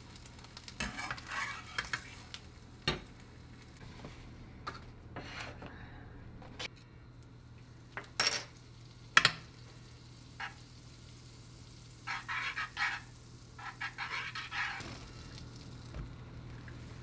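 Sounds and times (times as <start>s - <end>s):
butter sizzling in frying pan: 0.0s - 3.8s, 7.6s - 17.0s
chopsticks scraping pan: 0.8s - 2.3s, 12.1s - 14.9s.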